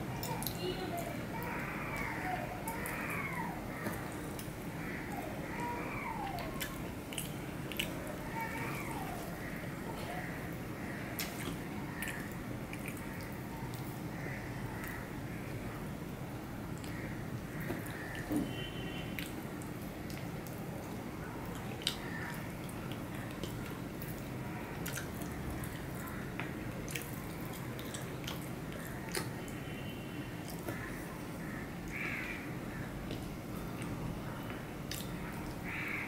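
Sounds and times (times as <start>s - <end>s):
low background noise: 0.0s - 36.0s
wet chewing: 6.1s - 9.6s, 11.1s - 14.2s, 19.1s - 29.6s, 34.8s - 35.8s.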